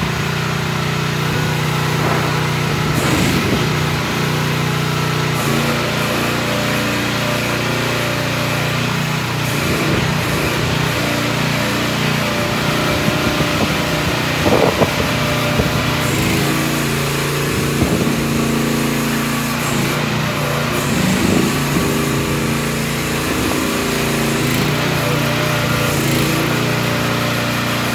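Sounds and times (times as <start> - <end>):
mini excavator engine running: 0.0 - 27.9
short metal clanks: 1.9 - 3.8.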